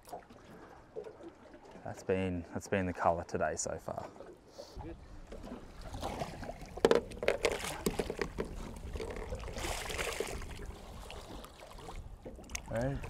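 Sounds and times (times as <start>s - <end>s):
fish thrashing and splashing: 5.3s - 12.7s.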